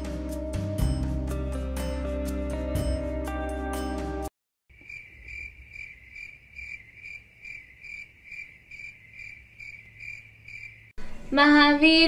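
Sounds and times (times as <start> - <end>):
tinkling background music: 0.0 - 4.3
cricket chirping: 4.7 - 11.0.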